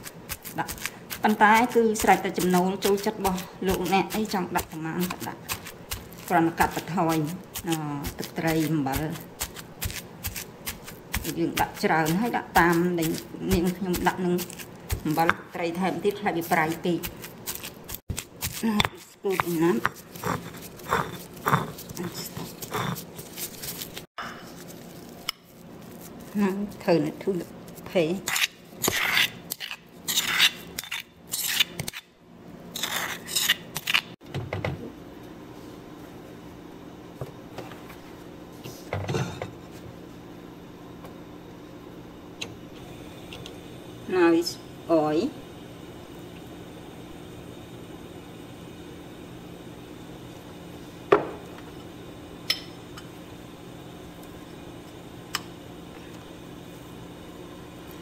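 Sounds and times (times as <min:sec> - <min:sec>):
steady low hum: 0:00.0 - 0:58.0
wooden utensil scraping stone mortar: 0:16.5 - 0:24.1, 0:26.1 - 0:32.0, 0:32.8 - 0:34.1.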